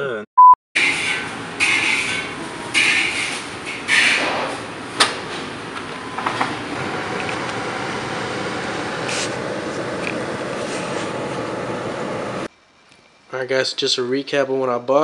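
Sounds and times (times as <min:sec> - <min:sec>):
car cabin hum: 0:06.8 - 0:12.5.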